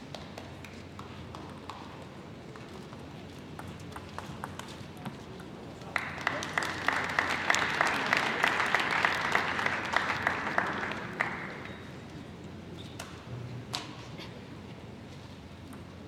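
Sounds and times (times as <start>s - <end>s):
spectators applauding: 5.9s - 11.9s.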